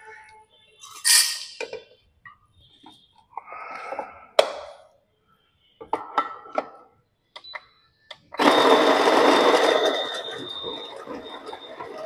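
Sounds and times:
coffee grinder motor whirring: 0:08.4 - 0:12.0.

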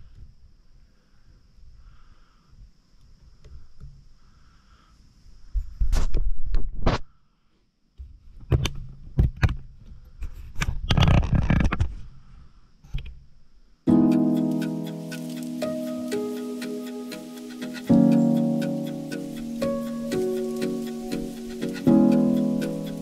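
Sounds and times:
taps and rubbing: 0:14.1 - 0:23.0.

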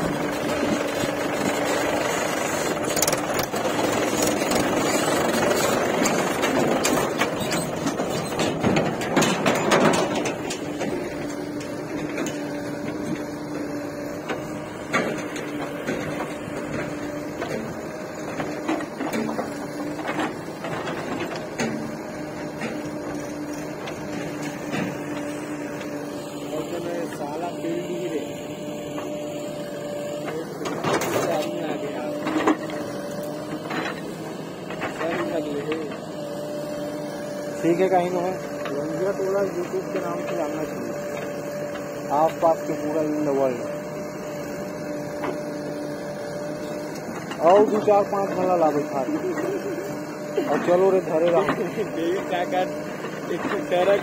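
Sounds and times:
backhoe knocks: 0:00.0 - 0:25.2
tractor diesel engines running: 0:00.0 - 0:54.0
tractor passing close: 0:00.0 - 0:54.0.

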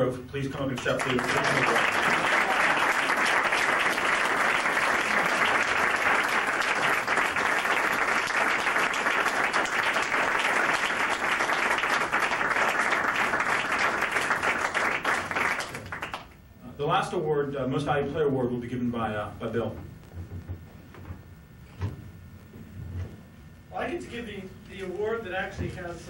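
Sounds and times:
crowd applauding: 0:00.7 - 0:16.4.

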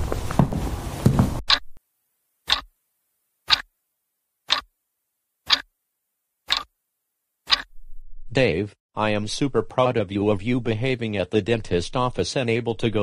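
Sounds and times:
footsteps: 0:00.0 - 0:01.8
clock ticking: 0:01.5 - 0:01.8, 0:02.5 - 0:02.7, 0:03.5 - 0:03.7, 0:04.5 - 0:04.7, 0:05.5 - 0:05.7, 0:06.5 - 0:06.7, 0:07.5 - 0:07.7.

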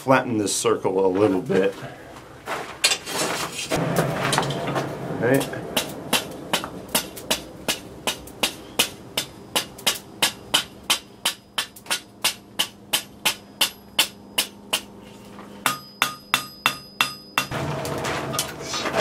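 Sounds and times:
hammer striking hot steel on anvil: 0:03.7 - 0:15.0, 0:15.6 - 0:17.6.

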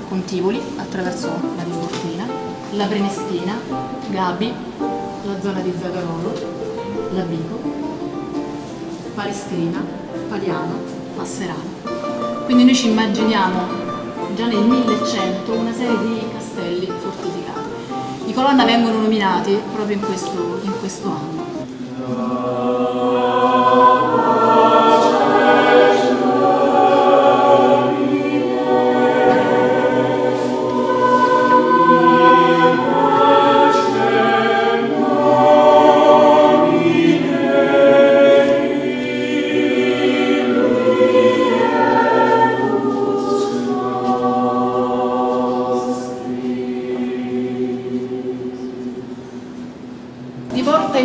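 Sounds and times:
group singing a cappella chant: 0:21.6 - 0:49.8.

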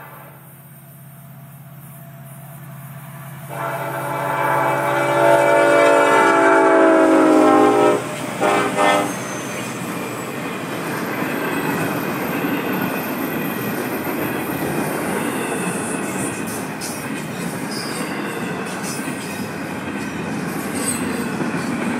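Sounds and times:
train rumble and wheel clatter: 0:00.0 - 0:21.9
locomotive air horn: 0:03.5 - 0:09.3.

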